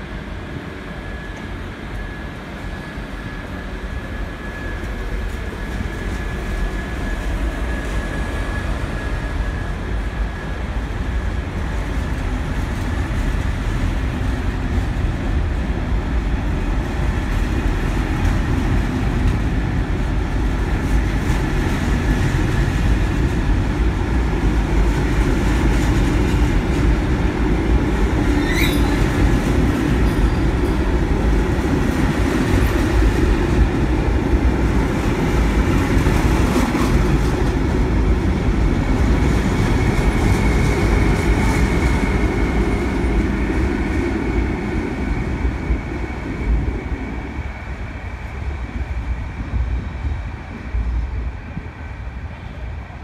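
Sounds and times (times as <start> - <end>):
train wheels rumbling: 0.0 - 53.0
brief high squeal: 28.4 - 29.0.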